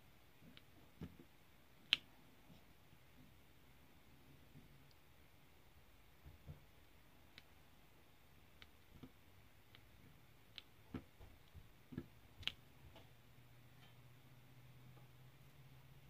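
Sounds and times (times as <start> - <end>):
faint low hum: 0.0 - 16.0
faint pen clicks and taps: 10.5 - 13.1.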